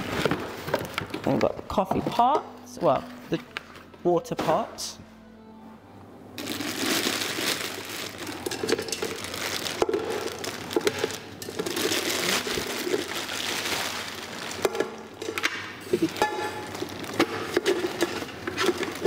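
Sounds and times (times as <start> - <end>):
packaging crinkling: 6.4 - 19.0.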